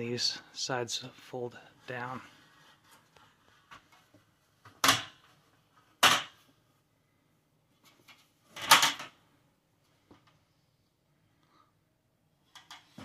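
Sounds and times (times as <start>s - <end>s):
folding table rattling: 8.0s - 9.2s.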